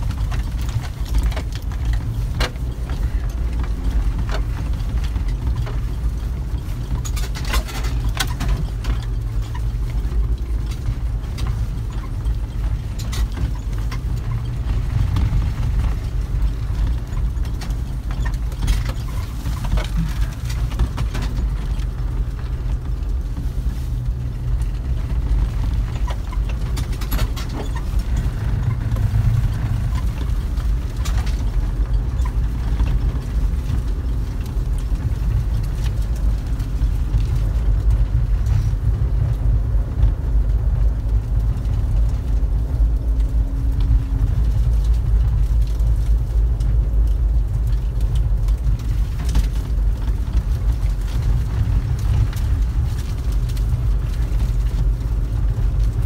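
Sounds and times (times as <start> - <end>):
knocks and rattles: 0.0 - 56.0
vehicle engine low rumble: 0.0 - 56.0.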